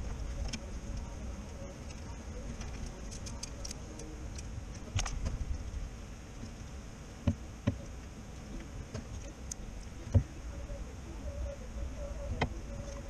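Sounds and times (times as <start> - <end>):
low background rumble: 0.0 - 13.0
metal parts clicking and knocking: 2.6 - 5.3.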